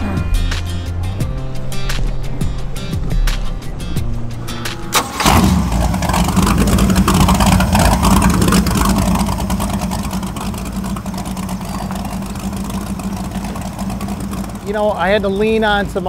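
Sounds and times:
powerboat engine droning: 3.5 - 16.0.

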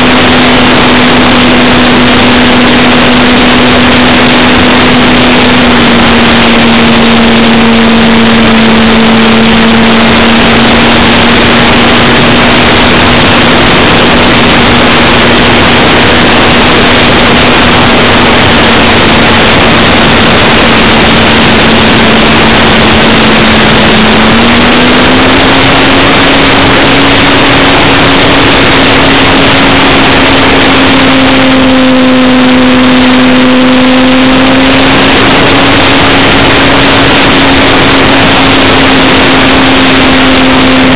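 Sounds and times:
model plane motor droning: 0.0 - 40.9
wind rushing over microphone: 0.0 - 40.9.

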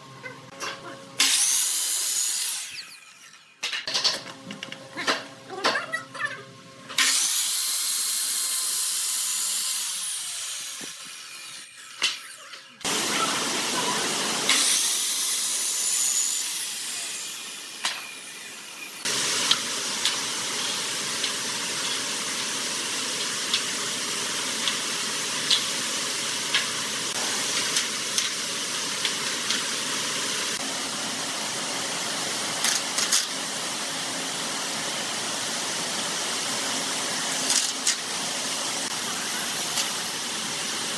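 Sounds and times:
miter saw cutting wood: 1.2 - 3.4, 7.0 - 22.9.

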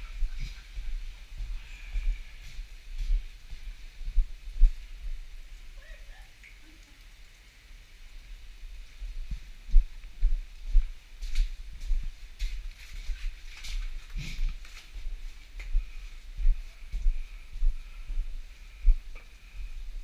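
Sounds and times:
footsteps on icy gravel path: 9.2 - 16.1.

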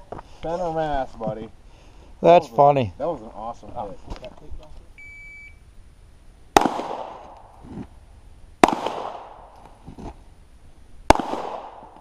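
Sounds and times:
handgun shots: 6.6 - 7.4, 8.6 - 9.4, 11.1 - 12.0.

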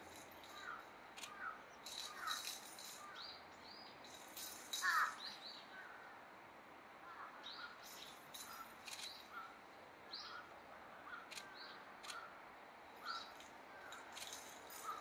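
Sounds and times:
small birds chirping: 0.1 - 6.1, 7.1 - 15.0
sharp clicks: 1.2 - 1.4, 11.3 - 12.2.

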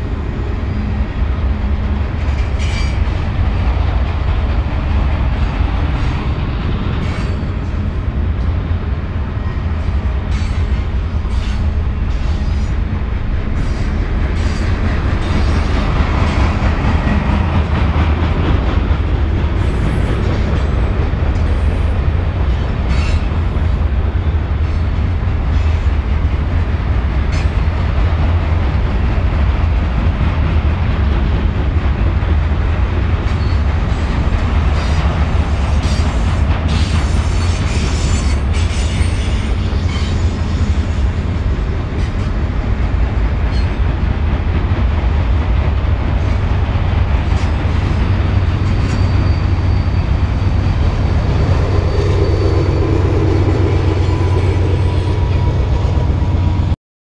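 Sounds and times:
train rumbling on rails: 0.0 - 56.8
high wheel squeal: 33.3 - 41.2, 47.3 - 56.4.

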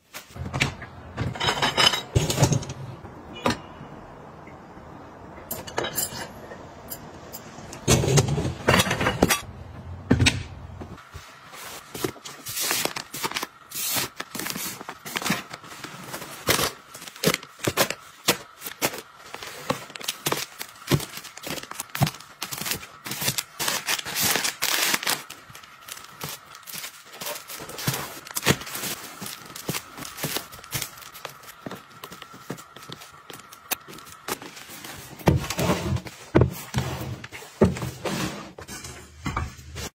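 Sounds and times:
items placed into plastic bin: 10.1 - 39.9.

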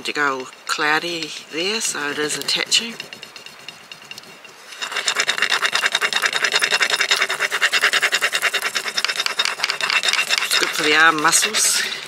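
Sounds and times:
wooden stick scraping: 0.0 - 12.0.

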